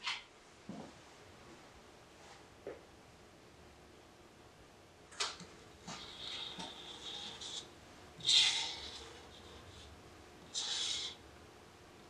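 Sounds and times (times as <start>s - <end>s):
metal spatula scraping wood: 5.8s - 9.8s.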